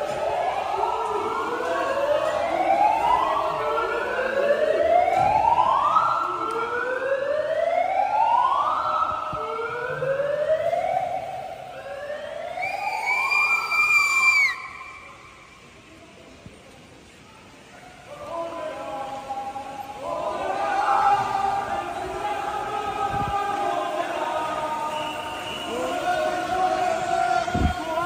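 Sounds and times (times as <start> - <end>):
siren whooping: 0.0 - 15.1.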